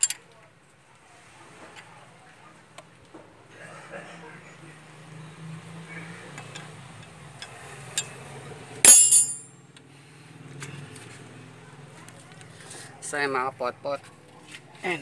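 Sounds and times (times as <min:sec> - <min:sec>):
wrench clanking on metal: 0:08.9 - 0:09.4.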